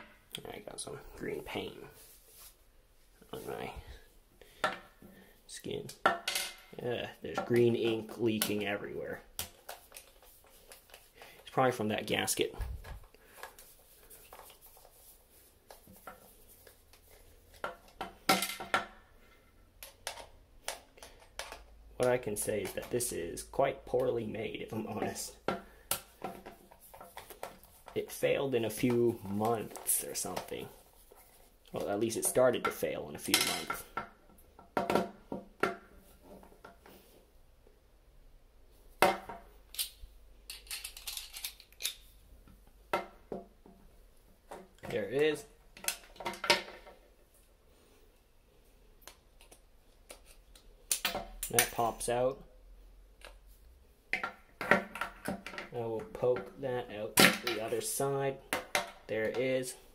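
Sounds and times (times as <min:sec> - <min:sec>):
plastic parts clicking: 0:39.7 - 0:42.0.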